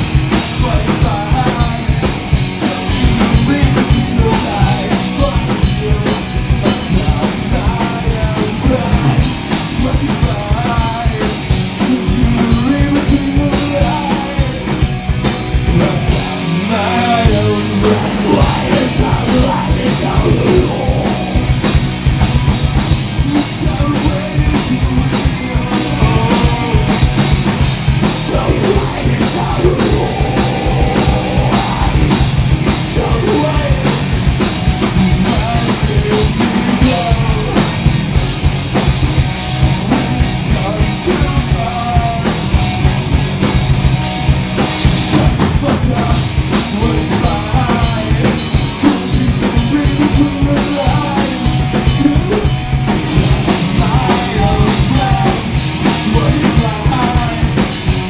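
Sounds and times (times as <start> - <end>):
live punk rock band playing: 0.0 - 58.0
shouted lead vocal: 15.7 - 21.5, 28.1 - 34.1.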